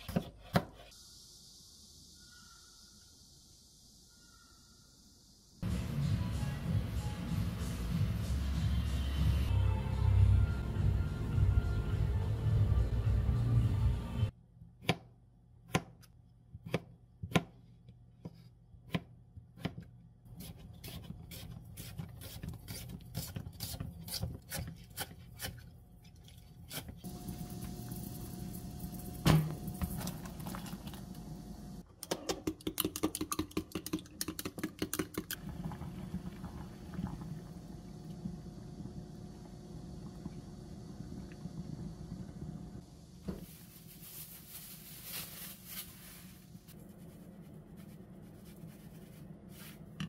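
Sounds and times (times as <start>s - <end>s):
knife chopping on plastic board: 16.6s - 17.5s.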